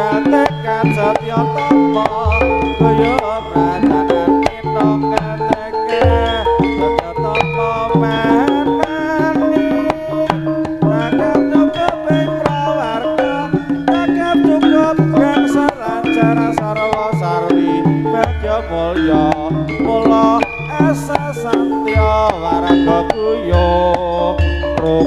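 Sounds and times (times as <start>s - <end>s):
hand drums fast rhythm: 0.0s - 25.0s
sustained wavering melody: 0.0s - 25.0s
deep low tone: 2.0s - 9.5s.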